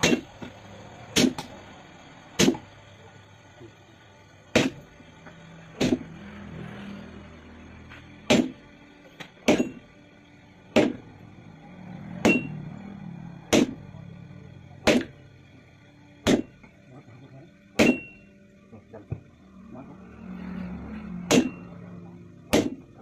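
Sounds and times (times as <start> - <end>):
sledgehammer striking iron on anvil: 0.0 - 0.5, 1.1 - 1.5, 2.4 - 2.7, 4.5 - 4.9, 5.8 - 6.1, 8.2 - 8.6, 9.4 - 9.9, 10.7 - 11.1, 12.2 - 12.7, 13.5 - 13.8, 14.8 - 15.2, 16.2 - 16.7, 17.7 - 18.3, 21.2 - 21.8, 22.4 - 23.0.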